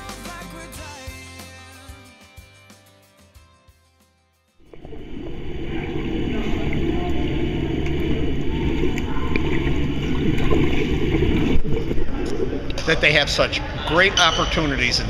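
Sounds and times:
underwater rushing and bubbling: 4.6 - 14.0.

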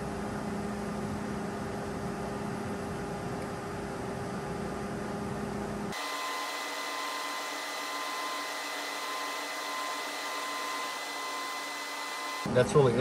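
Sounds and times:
printer low hum: 0.0 - 12.6
printer high whine: 5.9 - 13.0.

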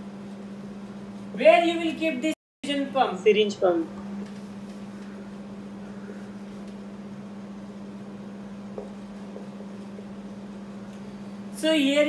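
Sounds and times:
low-pitched hum: 2.7 - 11.6.

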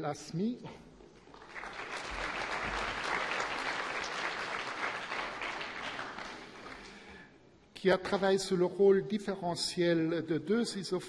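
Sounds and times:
audience applauding: 1.2 - 7.2.

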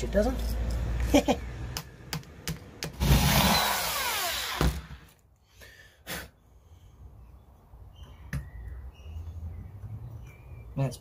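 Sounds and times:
power drill whining: 3.0 - 5.2.

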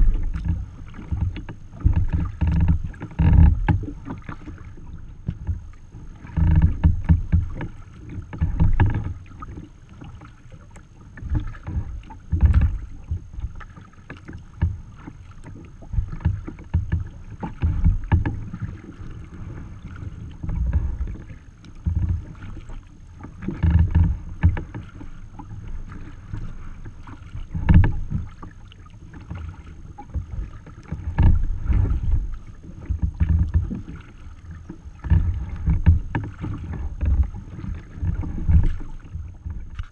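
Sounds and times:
low rumbling water surges: 0.0 - 39.9
water splashing against kayak hull: 0.0 - 39.9.

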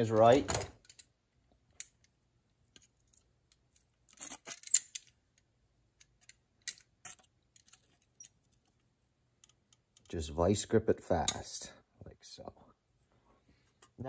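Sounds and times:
metal pliers and pans clinking: 6.2 - 8.4.

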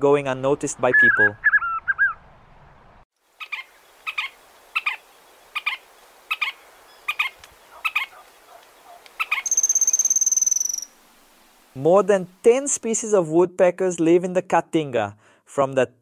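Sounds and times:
high thin bird trill: 5.6 - 11.0.

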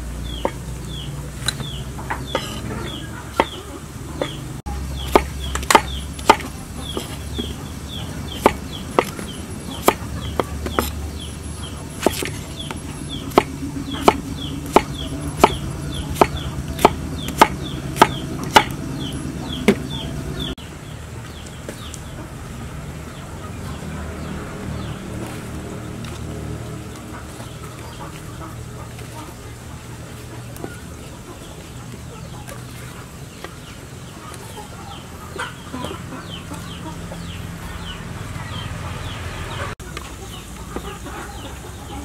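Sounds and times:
chickens chirping: 0.0 - 42.0
cleaver chopping on wooden board: 5.0 - 7.6, 8.3 - 11.0, 12.0 - 18.8.

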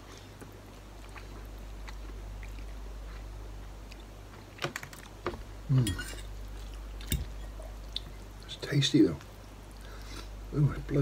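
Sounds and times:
man chewing noodles: 0.0 - 5.2, 6.3 - 8.5
steady low hum: 0.0 - 11.0.

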